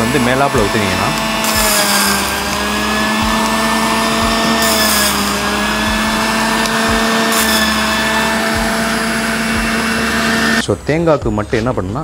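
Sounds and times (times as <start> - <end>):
juicer motor whining: 0.0 - 10.7.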